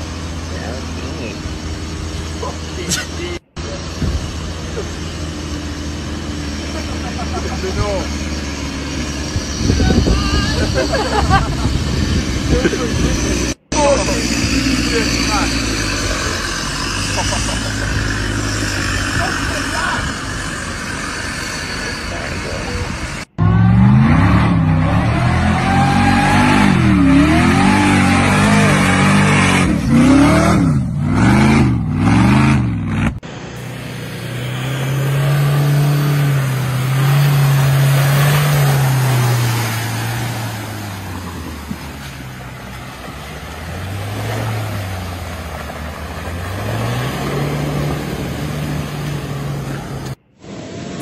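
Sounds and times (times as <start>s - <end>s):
vehicle engine revving: 0.0s - 51.0s
water splashing: 33.6s - 50.0s.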